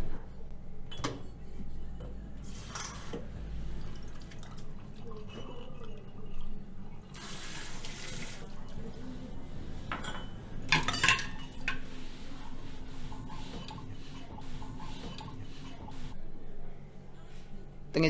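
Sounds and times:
dishes and glassware clinking: 0.8 - 1.4, 9.9 - 11.8.

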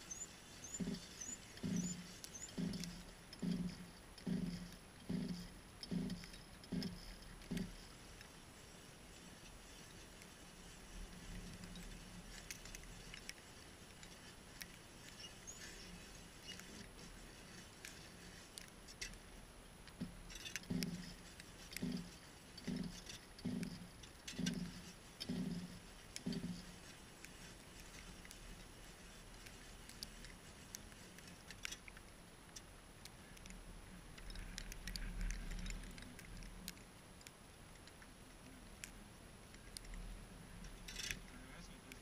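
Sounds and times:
rhythmic low crunches: 0.0 - 31.7.

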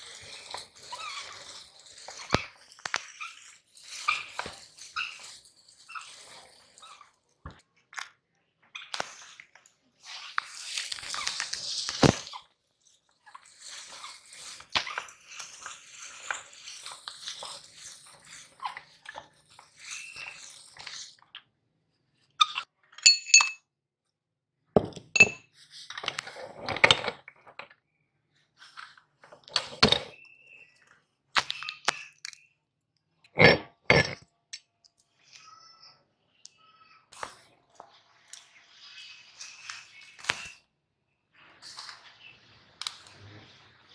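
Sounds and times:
meat grinder crushing cookies: 0.0 - 6.8, 10.5 - 21.2
metal clinks and knocks: 23.0 - 23.6, 24.8 - 25.4.

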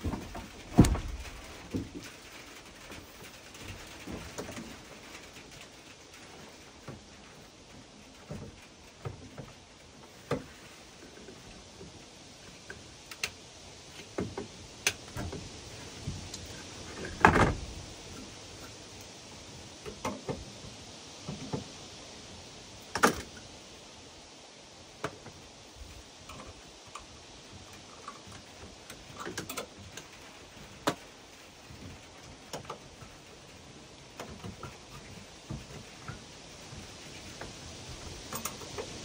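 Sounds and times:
heavy thump: 0.0 - 1.9
steady background hiss: 0.0 - 39.0.

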